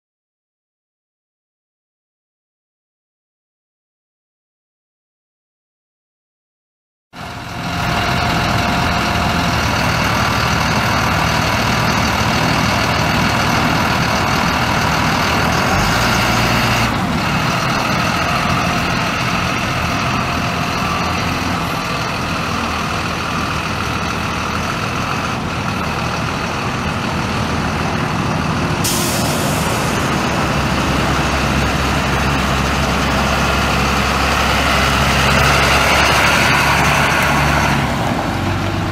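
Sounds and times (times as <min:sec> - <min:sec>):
diesel engine running: 0:07.2 - 0:38.9
air brake hiss: 0:28.8 - 0:30.0.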